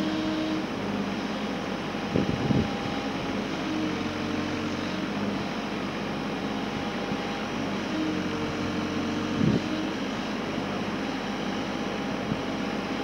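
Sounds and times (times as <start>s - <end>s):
excavator engine and hydraulics: 0.0s - 13.0s.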